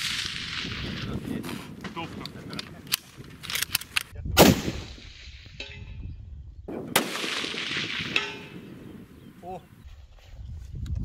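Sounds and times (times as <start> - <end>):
rifle shots with rolling echo: 4.4 - 5.2, 6.7 - 9.1.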